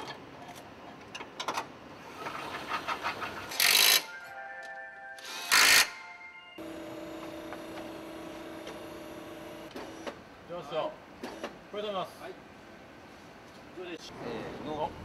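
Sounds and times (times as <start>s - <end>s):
cordless power tool running: 6.6s - 10.0s.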